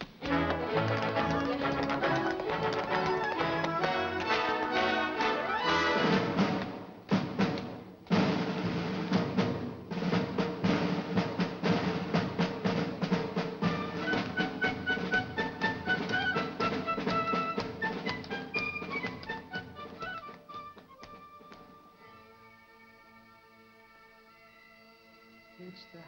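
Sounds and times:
sharp percussive taps: 0:00.0 - 0:05.3, 0:06.1 - 0:09.4, 0:10.6 - 0:21.8
orchestral irish dance music: 0:00.0 - 0:24.5.

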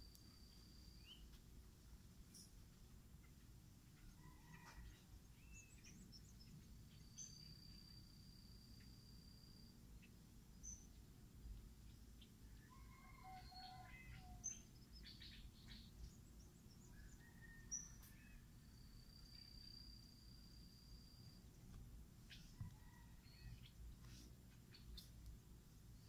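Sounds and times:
birdsong chirps and whistles: 0:00.5 - 0:01.4, 0:04.0 - 0:08.1, 0:11.9 - 0:20.0.

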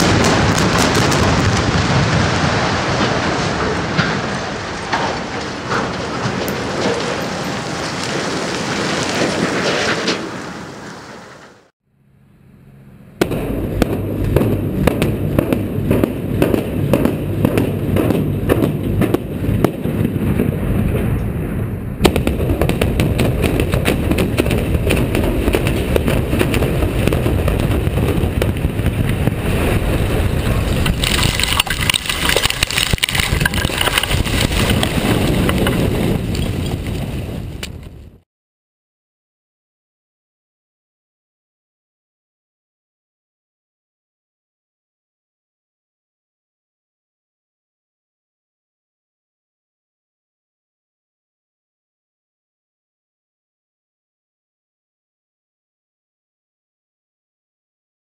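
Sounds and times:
debris rushing and clattering: 0:00.0 - 0:10.6, 0:22.0 - 0:37.3
rapid explosive charges crackling: 0:00.0 - 0:10.7, 0:13.2 - 0:38.2
building collapse rumble: 0:00.0 - 0:11.7, 0:13.2 - 0:38.2.

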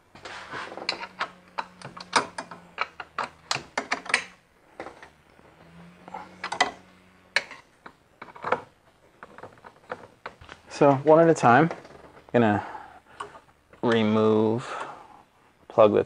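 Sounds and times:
wrench clicking on metal nuts: 0:00.9 - 0:05.2.

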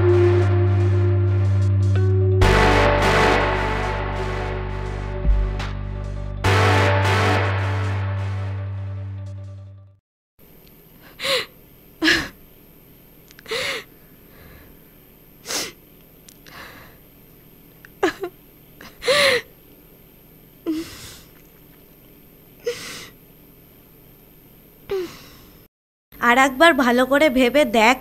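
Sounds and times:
background music: 0:00.0 - 0:10.0
woman sobbing: 0:18.0 - 0:19.5.

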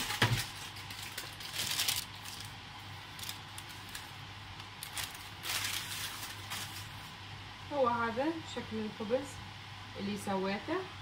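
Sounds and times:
baking paper crinkling: 0:00.0 - 0:07.2.

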